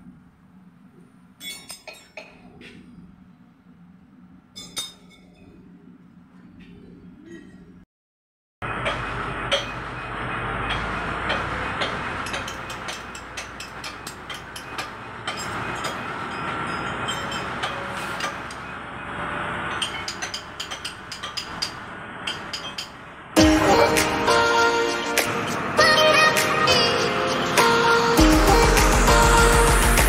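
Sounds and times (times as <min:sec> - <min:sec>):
tools tapping on metal: 0:01.4 - 0:02.8, 0:04.6 - 0:05.5, 0:08.8 - 0:18.6, 0:19.7 - 0:23.0.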